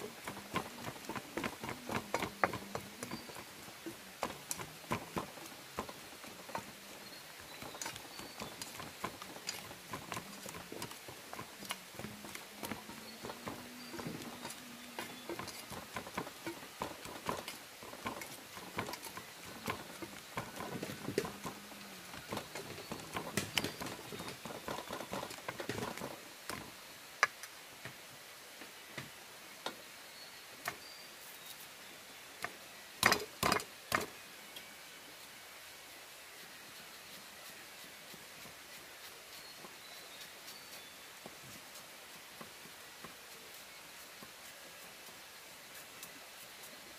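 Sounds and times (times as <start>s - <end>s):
light clicks and knocks: 0.0s - 28.0s.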